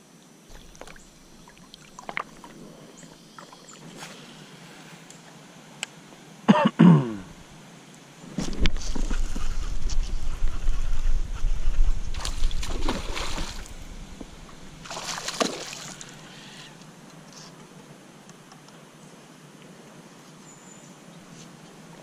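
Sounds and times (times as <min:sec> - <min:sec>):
water splashing: 0:00.5 - 0:04.4, 0:11.9 - 0:16.6
water trickling and lapping: 0:00.5 - 0:05.4, 0:08.4 - 0:17.4.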